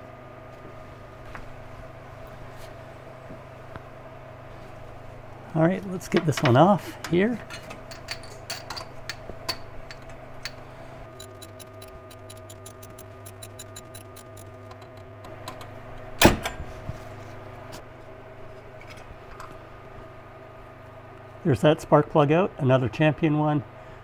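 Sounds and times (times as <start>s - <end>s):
steady hum: 0.0s - 24.0s
socket ratchet clicking: 11.1s - 14.6s.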